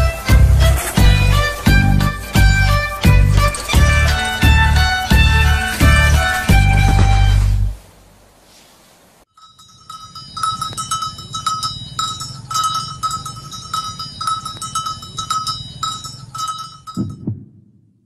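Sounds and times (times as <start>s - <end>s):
small metal bells clanking: 0.0s - 6.6s, 9.3s - 17.2s
low rumble: 0.0s - 8.3s, 17.0s - 18.0s.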